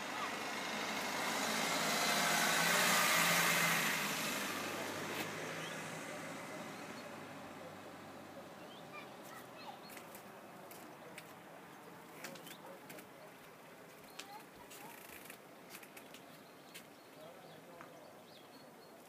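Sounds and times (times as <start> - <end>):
vehicle passing: 0.0 - 13.2.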